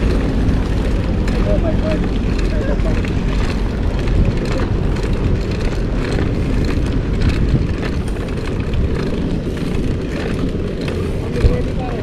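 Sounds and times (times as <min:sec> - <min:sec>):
wind rumbling across microphone: 0:00.0 - 0:12.0.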